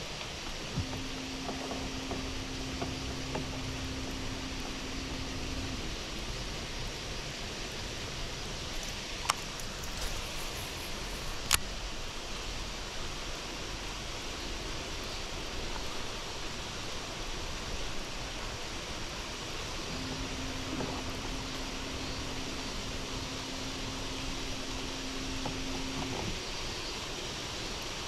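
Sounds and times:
open-air ambience hiss: 0.0s - 28.0s.

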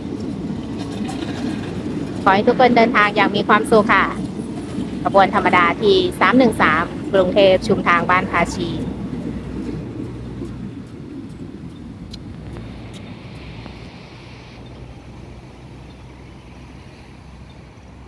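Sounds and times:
train rumbling past on rails: 0.0s - 18.0s
sharp clicks: 11.3s - 14.8s.

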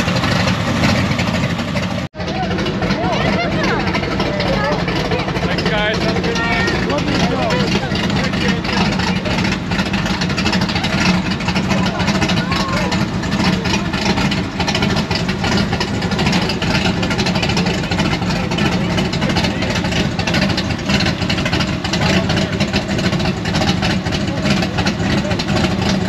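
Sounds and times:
loud car engine idling: 0.0s - 26.0s.

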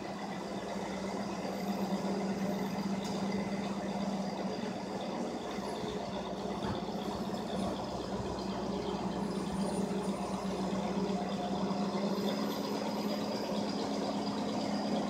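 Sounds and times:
diesel engine humming: 0.0s - 15.0s.

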